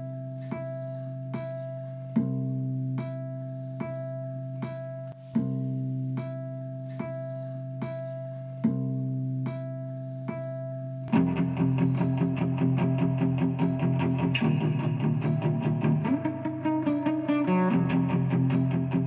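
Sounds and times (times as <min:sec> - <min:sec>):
guitar theme music: 0:11.1 - 0:19.0.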